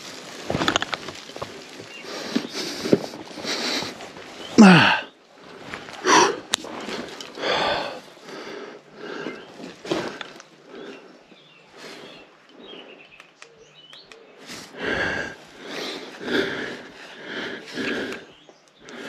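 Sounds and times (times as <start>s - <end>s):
man breathing hard: 4.6s - 5.1s, 5.9s - 6.5s, 7.4s - 13.0s, 14.6s - 19.0s
man grunting with effort: 4.6s - 5.1s.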